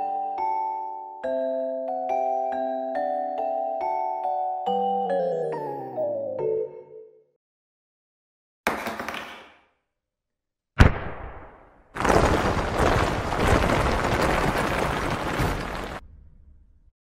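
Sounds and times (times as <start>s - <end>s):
sharp explosion boom: 10.8s - 16.8s
continuous crashing blast: 11.1s - 16.2s.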